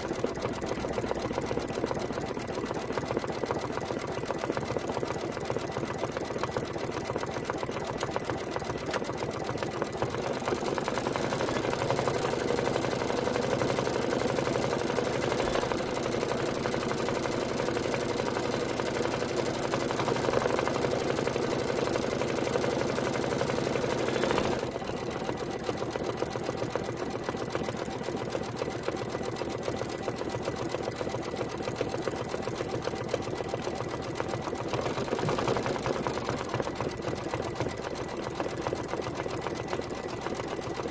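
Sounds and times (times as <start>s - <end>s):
embroidery machine stitching: 0.0s - 40.9s.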